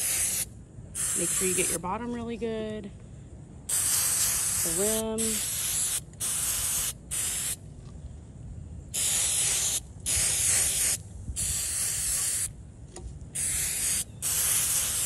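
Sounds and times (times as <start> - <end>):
aerosol spray hissing: 0.0 - 1.8, 3.7 - 7.6, 9.0 - 12.5, 13.4 - 15.0.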